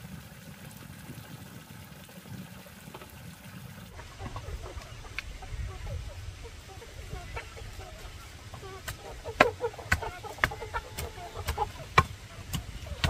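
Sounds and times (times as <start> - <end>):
chickens clucking: 3.9 - 13.0
sharp knocks: 8.8 - 13.0.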